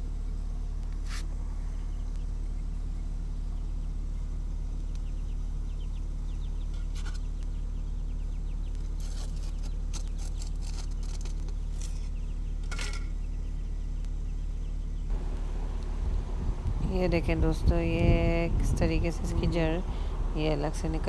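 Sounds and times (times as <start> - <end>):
steady low hum: 0.0 - 21.0
hands scraping soil and pot: 8.9 - 12.2.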